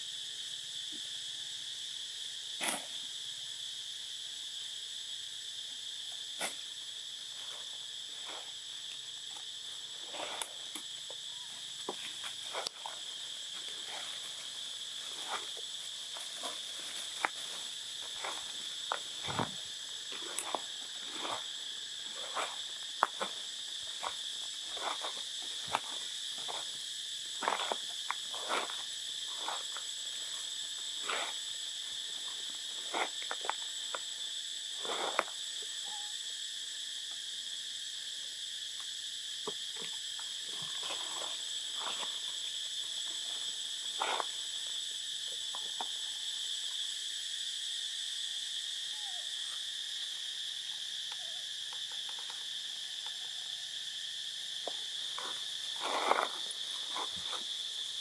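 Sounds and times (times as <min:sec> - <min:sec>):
insects droning: 0:00.0 - 0:58.0
crackles and rustles in leaves: 0:06.5 - 0:35.8, 0:39.9 - 0:46.6, 0:54.6 - 0:58.0.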